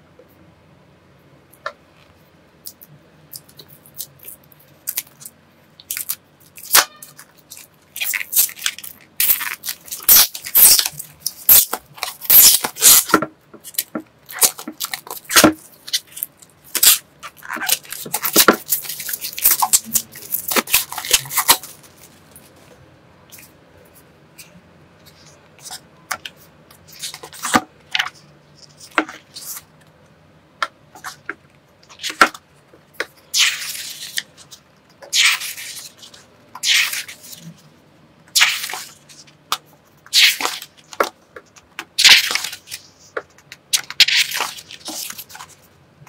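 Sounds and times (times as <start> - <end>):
plastic shrink-wrap tearing and crinkling: 5.9 - 22.5.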